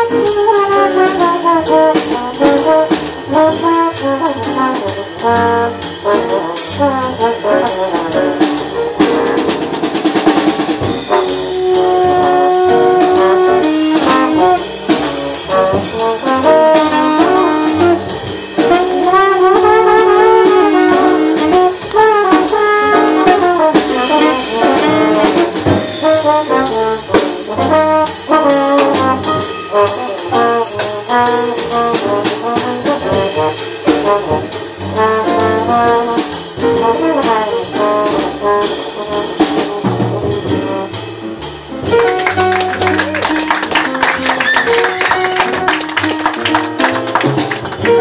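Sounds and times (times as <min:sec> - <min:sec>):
drums with cymbals ticking: 0:00.0 - 0:48.0
piano: 0:00.0 - 0:48.0
trombone: 0:00.0 - 0:48.0
upright bass: 0:00.0 - 0:48.0.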